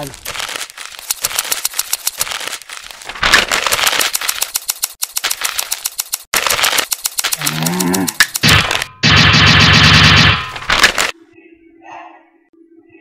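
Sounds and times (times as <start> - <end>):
rapid scissor clicking: 0.9 - 2.8, 3.4 - 8.9.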